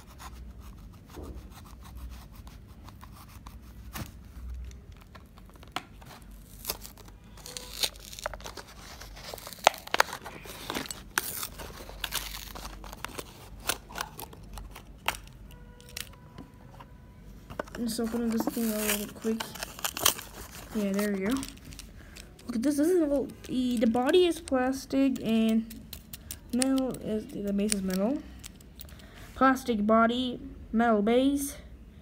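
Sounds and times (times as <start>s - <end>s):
plastic blister crackling: 4.4s - 16.2s, 17.6s - 28.7s
cardboard ripping: 6.0s - 14.4s, 18.0s - 21.8s.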